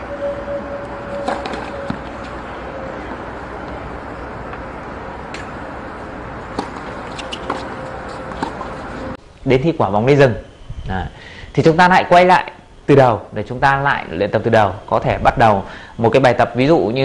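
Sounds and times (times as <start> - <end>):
tennis balls bouncing on court: 6.4 - 9.1
tennis balls struck by rackets: 6.4 - 9.1.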